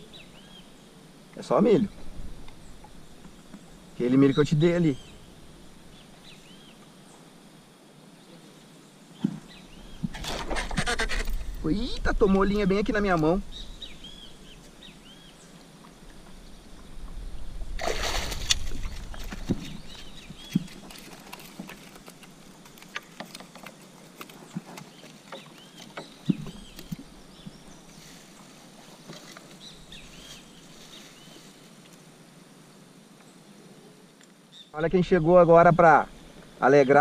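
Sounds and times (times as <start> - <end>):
small birds chirping: 0.0 - 7.5, 8.1 - 17.8, 18.4 - 31.7
water splashing: 17.6 - 23.1.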